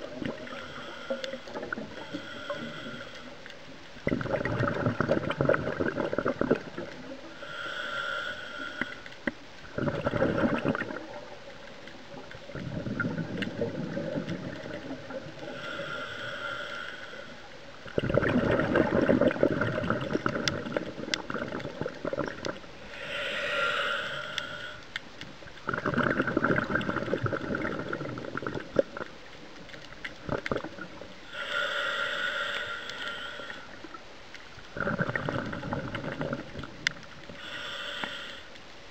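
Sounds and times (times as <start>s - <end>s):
regulator inhale hiss: 0.2s - 3.7s, 7.2s - 9.4s, 14.6s - 17.8s, 22.6s - 25.1s, 31.2s - 34.0s, 36.6s - 38.7s
exhaust bubbles bubbling: 4.0s - 7.2s, 9.6s - 11.4s, 12.2s - 15.4s, 17.8s - 22.6s, 25.6s - 29.1s, 30.2s - 31.0s, 34.7s - 36.9s.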